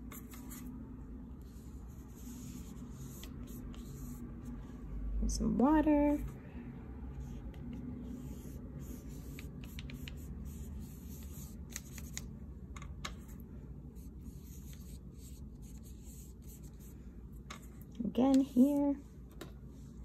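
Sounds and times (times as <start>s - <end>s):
paintbrush rubbing on paper: 1.4s - 4.8s, 7.1s - 12.2s, 14.0s - 17.0s.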